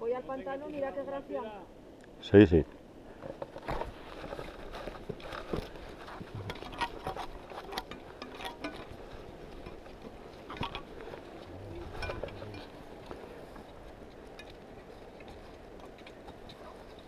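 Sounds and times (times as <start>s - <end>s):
trekking poles tapping rock: 3.2s - 17.0s
boots on rock and snow: 3.6s - 8.0s.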